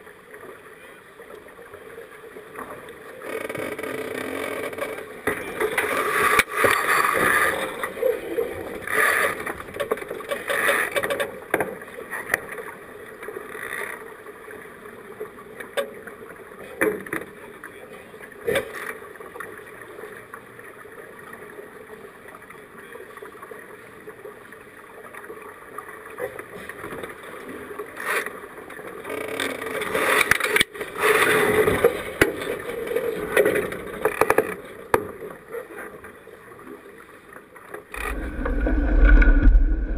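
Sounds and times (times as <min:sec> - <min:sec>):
water rushing along boat hull: 0:23.2 - 0:39.9.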